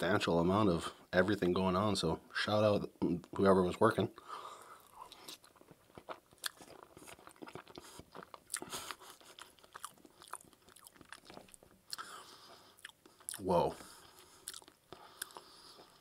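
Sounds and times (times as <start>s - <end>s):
chewing with soft mouth clicks: 4.6s - 16.0s.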